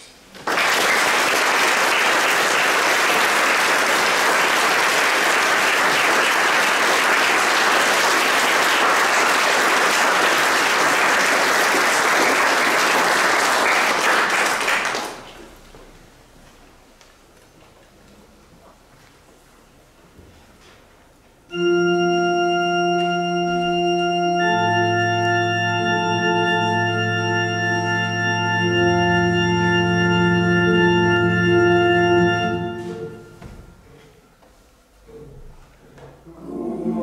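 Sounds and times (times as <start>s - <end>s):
audience applauding: 0.3s - 15.6s.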